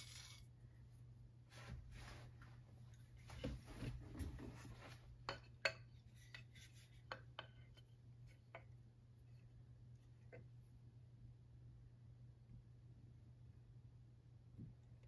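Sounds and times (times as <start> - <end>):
soft rustling: 1.1 - 5.2.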